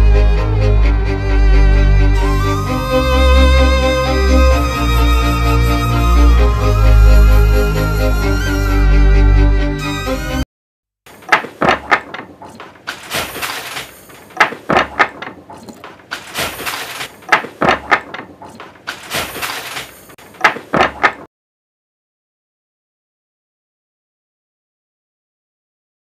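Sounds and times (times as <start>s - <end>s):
handloom clacking: 11.1s - 21.3s
handloom heavy thump: 11.1s - 21.3s.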